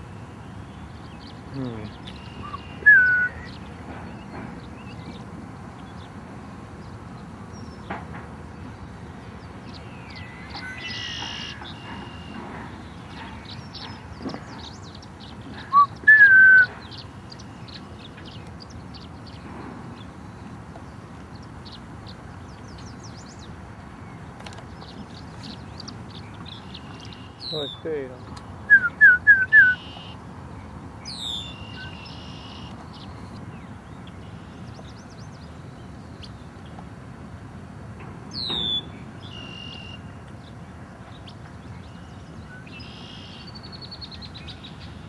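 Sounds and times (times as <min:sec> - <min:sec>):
faint bird chirps: 0:00.5 - 0:03.6, 0:09.7 - 0:12.4, 0:41.9 - 0:43.8
blackbird singing: 0:00.5 - 0:05.2, 0:09.6 - 0:19.4, 0:24.8 - 0:30.2, 0:31.0 - 0:36.4, 0:38.3 - 0:40.0, 0:41.2 - 0:45.0.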